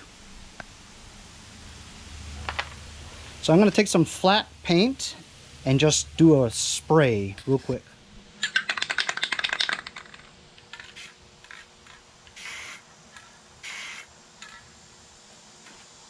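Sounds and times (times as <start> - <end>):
spray can ball rattling: 8.4 - 14.7
spray paint hissing: 10.8 - 14.6.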